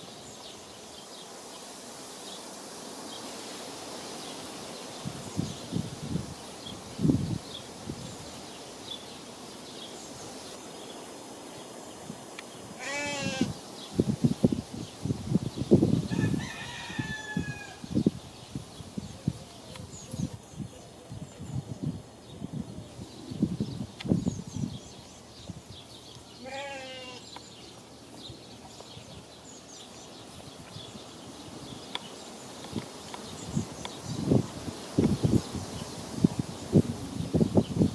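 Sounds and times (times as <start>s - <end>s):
goat bleating: 12.8s - 13.5s, 26.4s - 27.3s.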